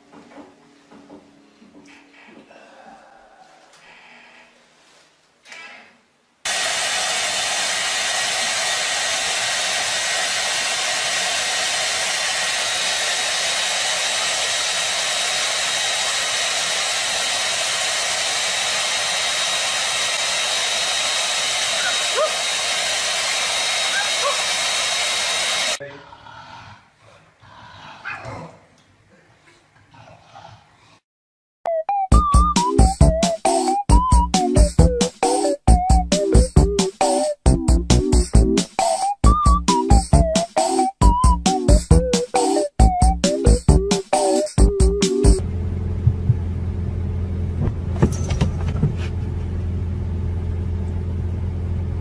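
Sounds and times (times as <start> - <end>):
hair dryer running: 6.5 - 25.8, 46.0 - 46.6.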